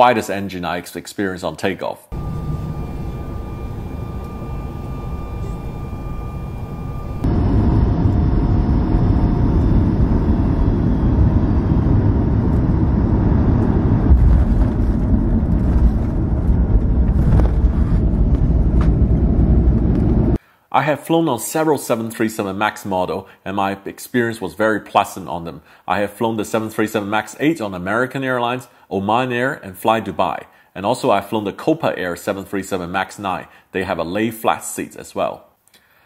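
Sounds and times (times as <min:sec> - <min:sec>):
deep rumble of plane on runway: 0:02.2 - 0:20.4
jet engine with high whine: 0:02.2 - 0:20.4.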